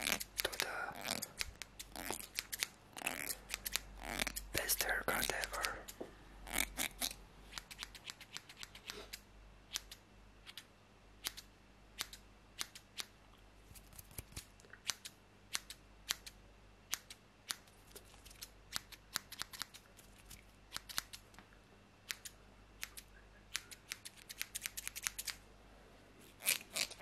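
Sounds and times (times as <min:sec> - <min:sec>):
scissors snipping: 0:00.0 - 0:04.5, 0:16.9 - 0:21.2, 0:22.1 - 0:25.4.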